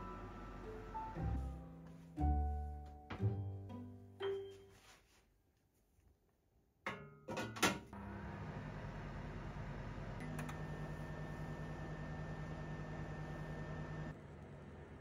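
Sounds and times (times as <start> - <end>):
steam oven humming: 8.0 - 15.0.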